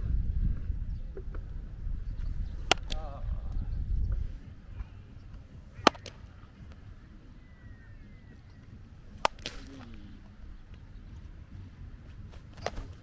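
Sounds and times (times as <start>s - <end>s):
baseball smacking into glove: 2.6s - 3.0s, 5.8s - 6.3s, 9.1s - 10.4s, 12.3s - 13.0s.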